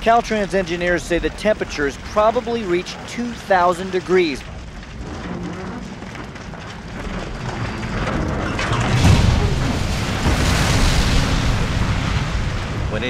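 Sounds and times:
deep rumbling: 0.0s - 13.0s
fire roaring and crackling: 0.0s - 13.0s.

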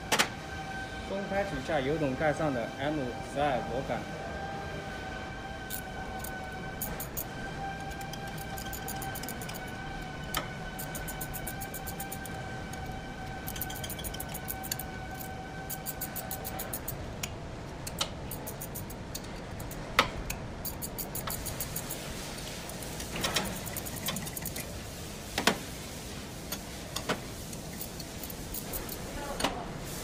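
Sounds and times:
steady high whine: 0.5s - 24.8s
wrench ticking on bolts: 7.9s - 9.6s, 10.3s - 12.4s, 13.5s - 22.0s.

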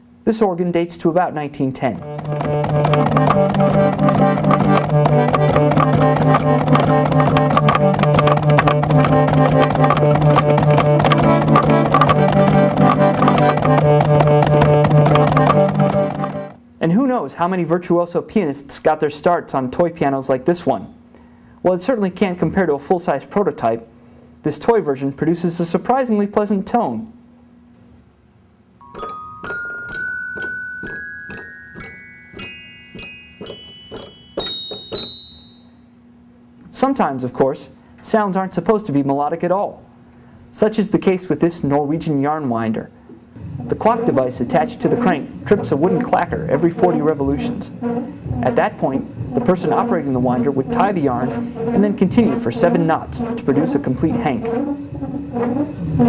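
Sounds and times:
toy piano notes: 2.0s - 16.5s, 28.8s - 35.8s
roller organ playing chorded tune: 2.0s - 16.6s.

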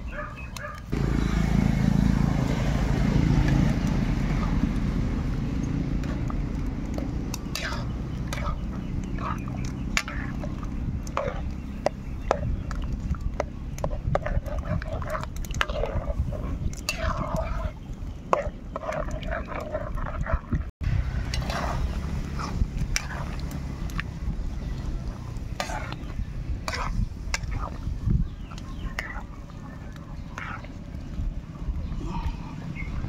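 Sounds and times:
steady low rumble: 0.9s - 33.0s
metal ladle scraping pan: 6.9s - 11.5s, 13.8s - 20.2s, 21.3s - 23.5s, 25.6s - 27.8s.

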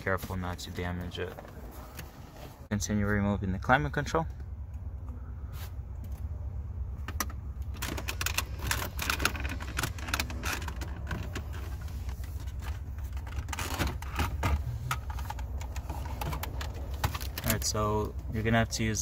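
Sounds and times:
low steady hum: 0.0s - 19.0s
plastic clicks and rattles: 7.2s - 11.6s.

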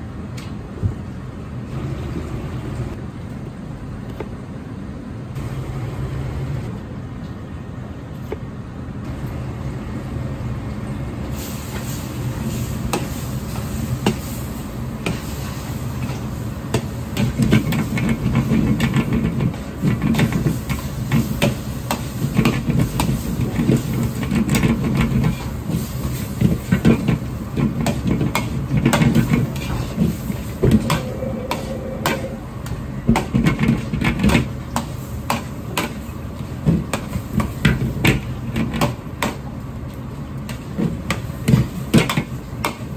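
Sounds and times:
gas burner rushing: 11.1s - 42.9s
rice frying hiss: 11.3s - 32.3s.

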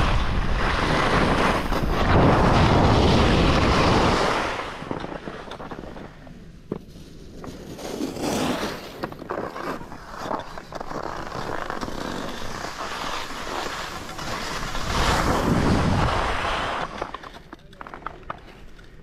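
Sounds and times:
wind rushing over microphone: 0.0s - 6.7s, 12.4s - 17.1s
ski edges scraping on snow: 0.0s - 19.0s.

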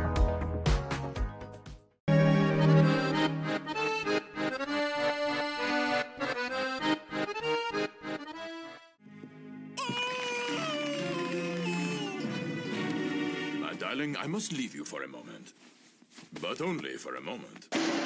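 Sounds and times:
accordion music: 2.1s - 9.8s, 11.0s - 13.8s.

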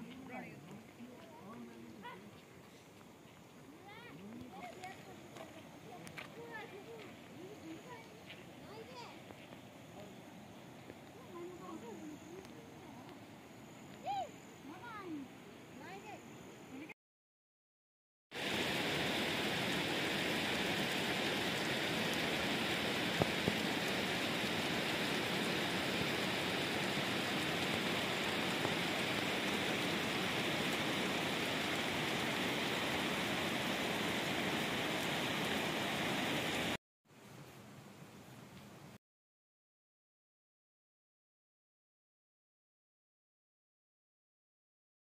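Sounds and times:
waterfall splashing on rock: 18.4s - 36.8s.

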